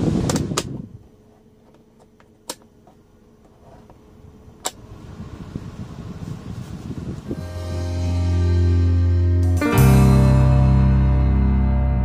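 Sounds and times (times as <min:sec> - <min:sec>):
blower airflow rushing: 0:00.0 - 0:01.2, 0:04.8 - 0:10.7
fan-speed switch clicking: 0:02.2 - 0:02.7.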